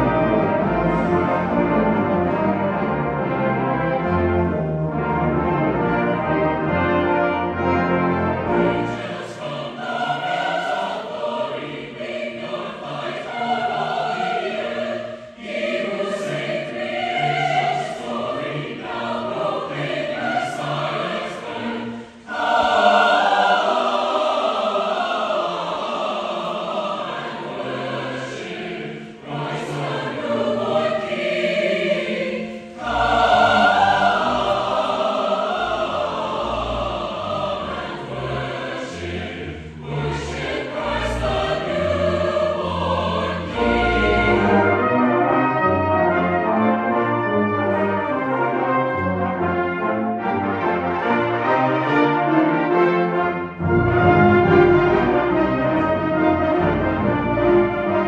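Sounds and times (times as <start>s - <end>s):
brass band playing: 0.0s - 9.6s, 43.6s - 58.0s
choir singing: 0.0s - 58.0s.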